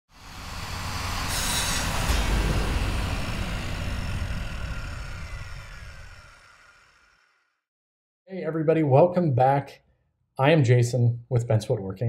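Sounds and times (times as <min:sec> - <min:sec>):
deep booming hit: 0:01.6 - 0:06.0.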